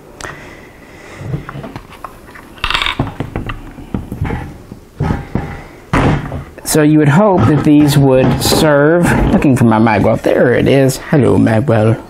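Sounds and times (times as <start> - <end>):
rifle parts clicking and clinking: 1.8 - 3.6.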